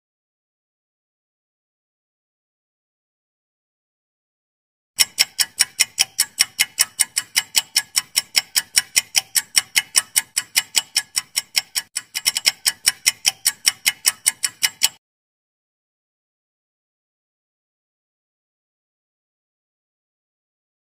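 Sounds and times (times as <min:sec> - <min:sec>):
rapid clock ticking: 0:05.0 - 0:15.0.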